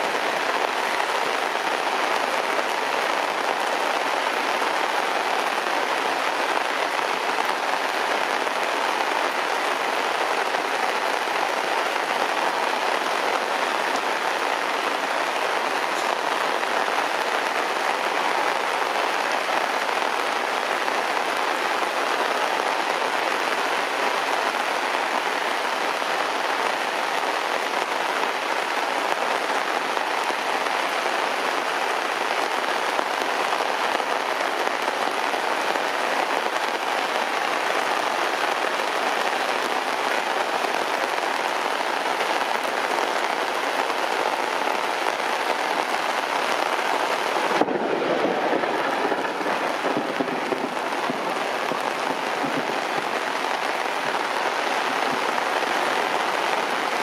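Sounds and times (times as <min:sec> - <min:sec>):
heavy rain falling: 0:00.0 - 0:57.0.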